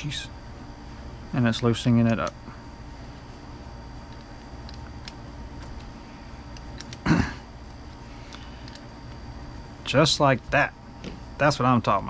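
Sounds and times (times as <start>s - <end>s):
steady room hum: 0.0s - 12.0s
small clicks of plastic parts: 6.5s - 7.0s, 8.3s - 8.9s.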